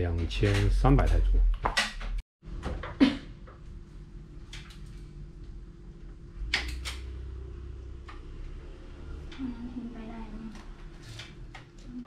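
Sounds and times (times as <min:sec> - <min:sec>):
steady low hum: 0:02.5 - 0:12.0.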